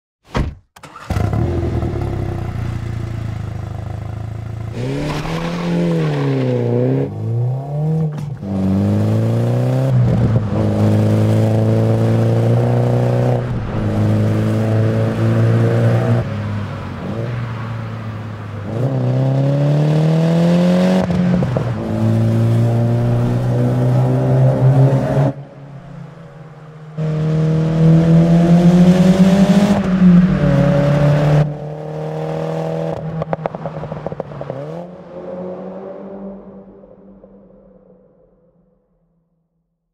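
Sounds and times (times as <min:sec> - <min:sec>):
car engine accelerating hard: 0:01.0 - 0:17.9, 0:27.0 - 0:36.7.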